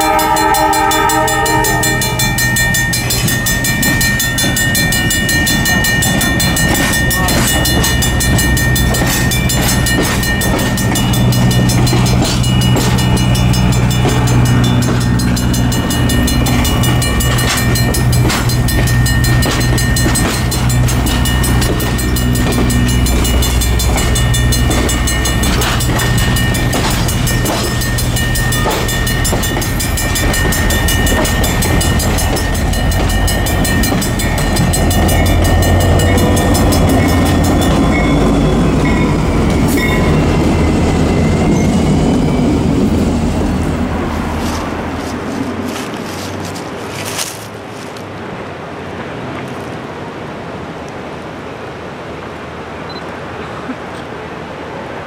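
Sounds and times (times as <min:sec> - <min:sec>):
diesel locomotive engine drone: 0:00.0 - 0:55.0
train wheels clicking and knocking: 0:02.2 - 0:43.6.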